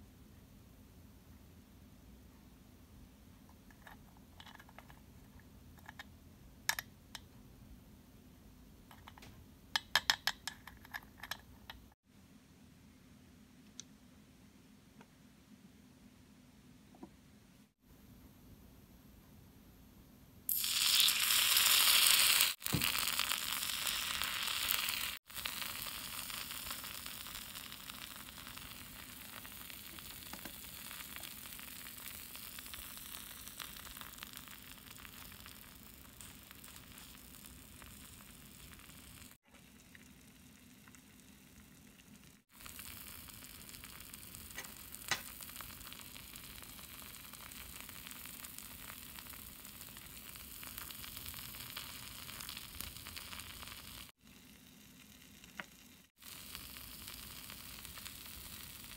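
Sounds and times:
batter sizzling in frying pan: 0:20.5 - 0:58.9.

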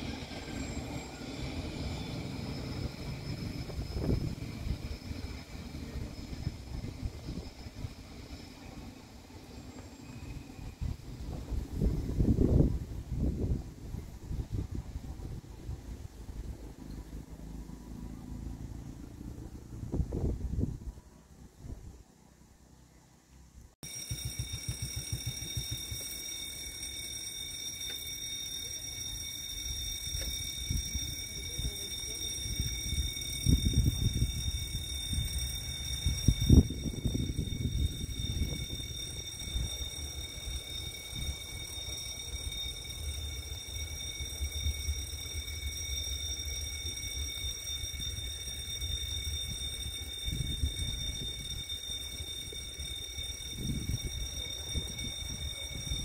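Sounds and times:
level crossing warning bell: 0:00.0 - 0:11.0, 0:23.8 - 0:56.0.

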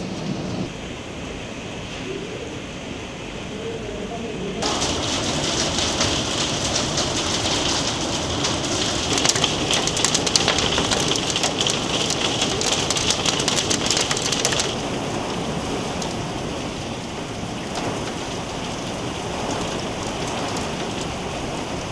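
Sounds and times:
heavy rain falling: 0:00.0 - 0:21.9
hail hitting: 0:04.6 - 0:21.9.

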